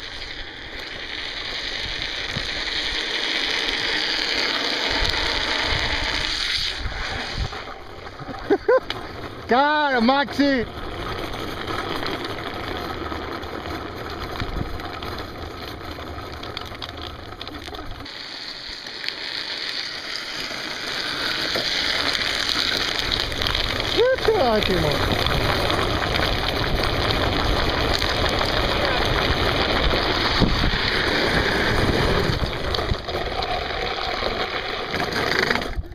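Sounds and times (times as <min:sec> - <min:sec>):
wheels rolling over asphalt: 0:00.0 - 0:35.9
wind blowing across microphone: 0:23.7 - 0:33.2.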